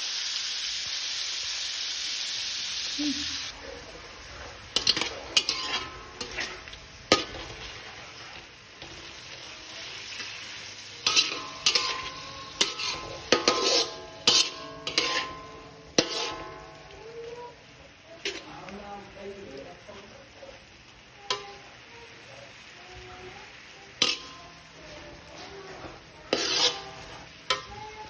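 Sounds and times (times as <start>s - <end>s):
meat frying sizzle: 0.0s - 28.0s
metal spatula striking wok: 4.7s - 7.7s, 11.0s - 17.3s, 24.0s - 24.5s, 26.3s - 28.0s.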